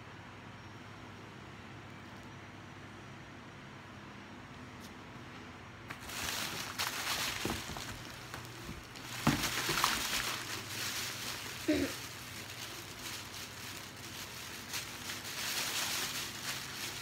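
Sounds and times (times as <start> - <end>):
plastic packaging rustling: 5.9 - 17.0
person murmuring: 11.6 - 12.1.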